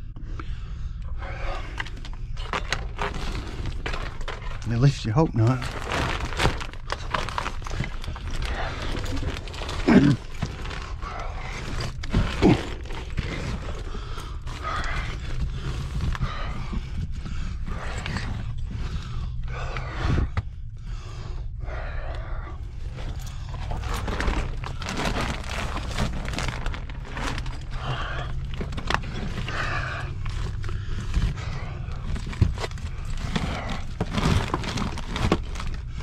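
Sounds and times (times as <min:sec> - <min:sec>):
steady low hum: 0:00.0 - 0:36.0
person crawling over rocks: 0:05.4 - 0:18.8, 0:22.8 - 0:36.0.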